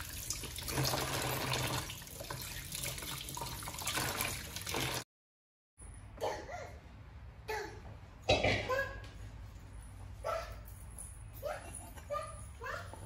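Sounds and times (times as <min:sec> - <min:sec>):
tap water running into basin: 0:00.0 - 0:05.0.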